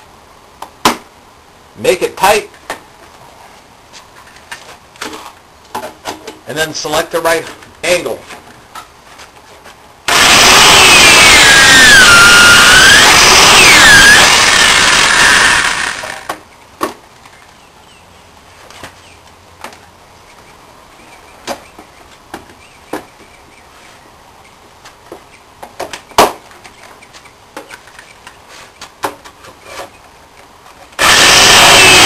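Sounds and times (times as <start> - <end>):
electric drill running: 10.1 - 16.3, 31.0 - 32.0.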